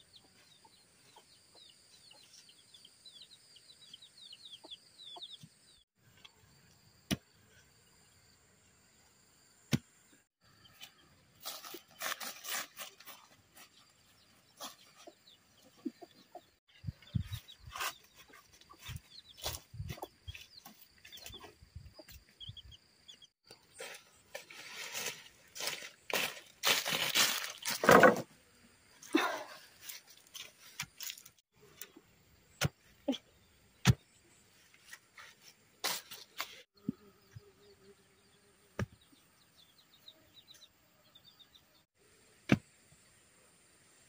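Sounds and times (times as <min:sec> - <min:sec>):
dry brush rustling and crunching: 0:11.4 - 0:13.8, 0:23.8 - 0:27.9, 0:29.7 - 0:31.4
wooden poles being handled: 0:23.7 - 0:28.3, 0:29.8 - 0:31.9.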